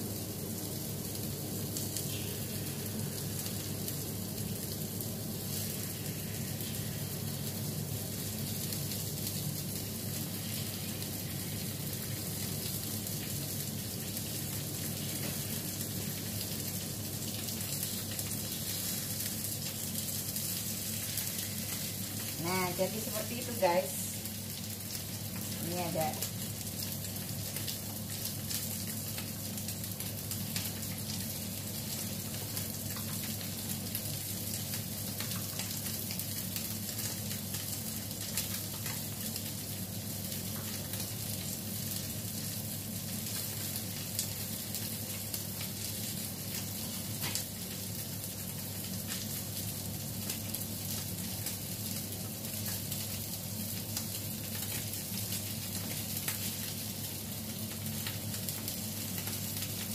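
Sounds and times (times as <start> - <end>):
steady low hum: 0.0 - 17.9
food sizzling in a pan: 0.0 - 59.9.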